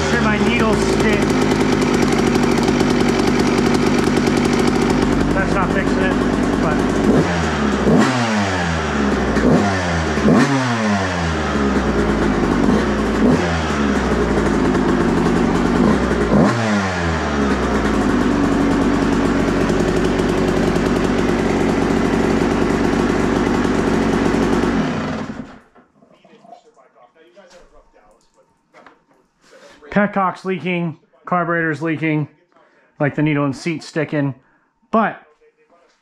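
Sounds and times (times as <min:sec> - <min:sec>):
dirt bike engine revving and idling: 0:00.0 - 0:25.7.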